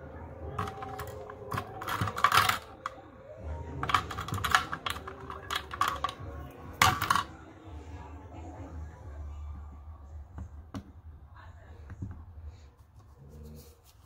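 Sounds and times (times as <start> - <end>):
plastic tray clicking and rattling: 0.6 - 3.0, 3.8 - 7.3.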